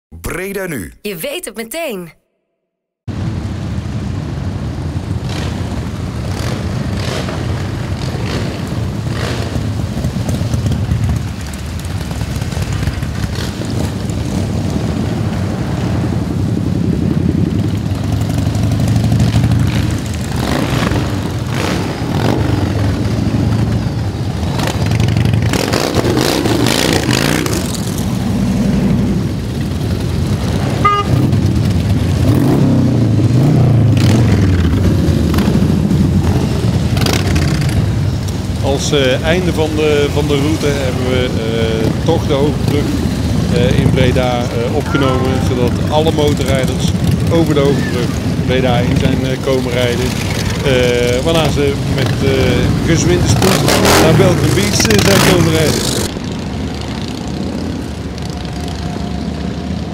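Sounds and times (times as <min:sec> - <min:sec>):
motorcycles riding past: 0:03.1 - 0:59.9
short beep: 0:30.8 - 0:31.2, 0:44.8 - 0:45.7.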